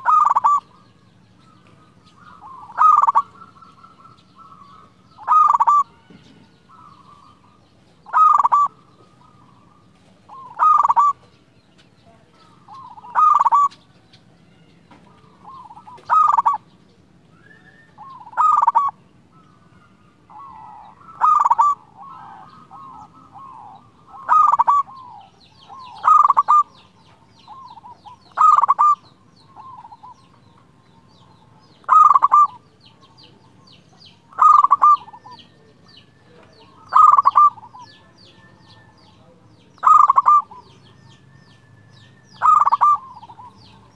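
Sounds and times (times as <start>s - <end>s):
dove cooing: 0.0s - 11.4s, 12.1s - 16.7s, 17.4s - 41.3s, 42.0s - 43.9s.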